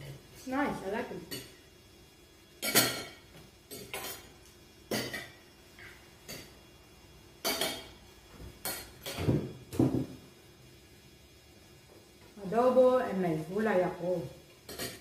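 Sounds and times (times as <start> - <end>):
cutlery clinking on plates: 2.6 - 4.3, 4.9 - 6.5, 7.4 - 7.9, 8.6 - 10.1, 14.7 - 15.0.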